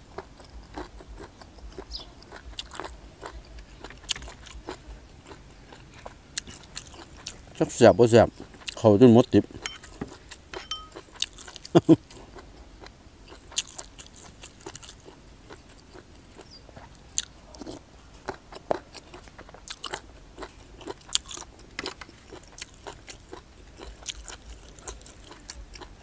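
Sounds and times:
person chewing crunchy food: 0.0 - 26.0.

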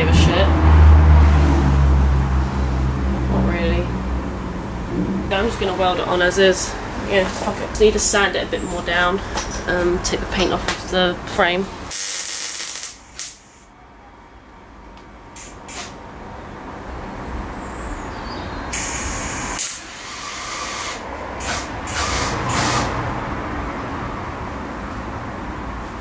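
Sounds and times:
welding arc hissing: 11.9 - 13.6, 18.7 - 22.9.

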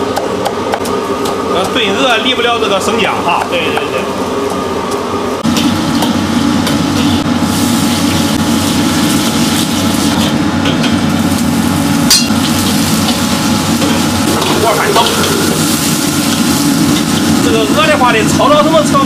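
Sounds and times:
gas burner running: 0.0 - 19.0
food sizzling in oil: 5.4 - 19.0.

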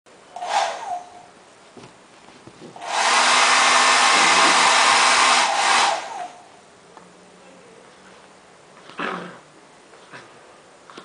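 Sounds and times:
hair dryer blowing: 0.4 - 1.2, 2.8 - 6.5.

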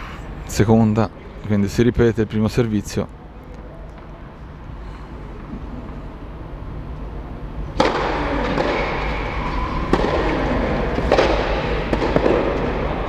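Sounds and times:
tennis ball struck by rackets: 7.8 - 12.9.

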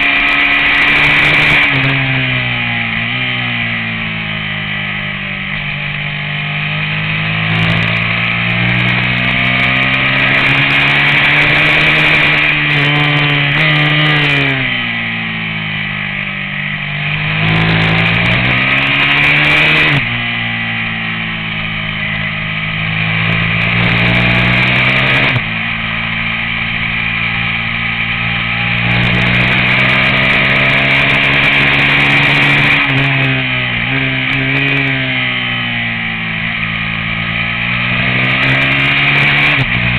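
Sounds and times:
racing motorcycle engine revving: 0.0 - 39.9.

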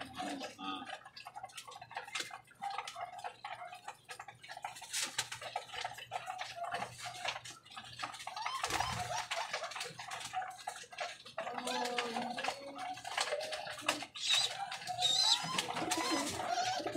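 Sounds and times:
pigeons pecking clicks: 0.0 - 16.9
pigeons cooing: 7.8 - 16.9
wings flapping: 8.0 - 10.8, 11.7 - 16.9.

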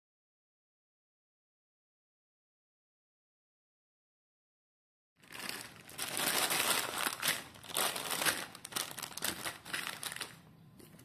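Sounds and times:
plastic bags of toy bricks crinkling: 5.2 - 10.5.

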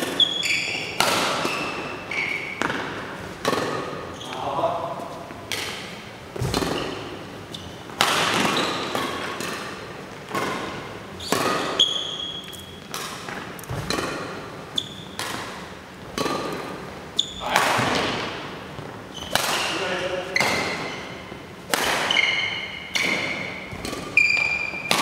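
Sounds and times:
shoe squeaks: 0.0 - 2.7, 4.0 - 4.6, 6.7 - 9.3, 11.2 - 12.9, 14.7 - 15.2, 17.1 - 17.6, 19.0 - 21.3, 22.0 - 25.0
rackets hitting shuttlecock: 0.0 - 4.6, 5.2 - 25.0.

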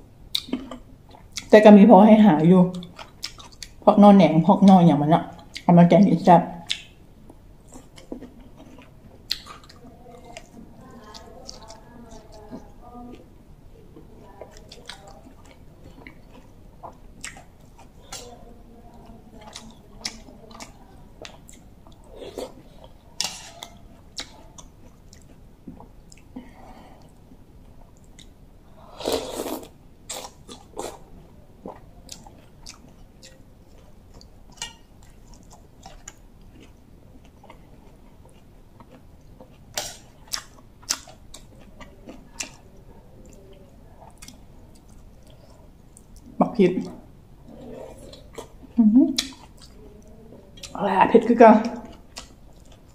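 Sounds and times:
person chewing food: 0.3 - 1.5, 2.7 - 3.8, 6.6 - 50.8, 51.8 - 52.9
mouth clicks and smacks: 48.0 - 49.8.

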